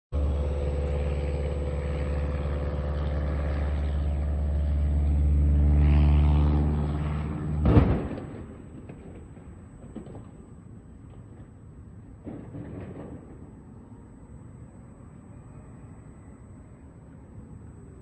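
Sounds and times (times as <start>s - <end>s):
propeller plane engine drone: 0.1s - 18.0s
plane crashing: 0.2s - 10.5s.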